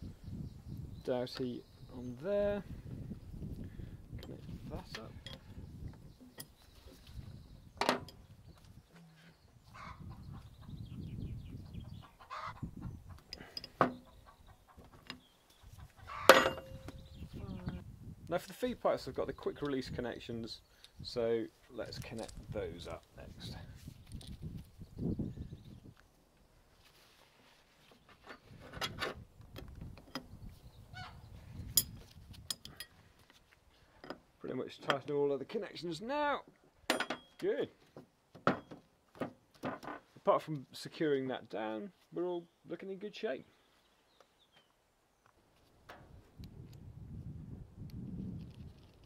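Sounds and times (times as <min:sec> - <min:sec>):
farmyard fowl calling: 0:09.7 - 0:10.4, 0:12.0 - 0:13.0, 0:15.7 - 0:16.4, 0:30.9 - 0:31.2
metal fittings clinking and scraping: 0:16.2 - 0:16.8, 0:31.7 - 0:33.0
ringing metal clank: 0:16.2 - 0:17.0, 0:36.9 - 0:37.4.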